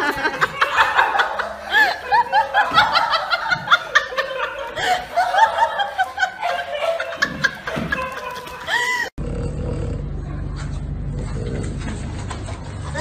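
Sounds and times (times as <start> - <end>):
people giggling: 0.0 - 9.2.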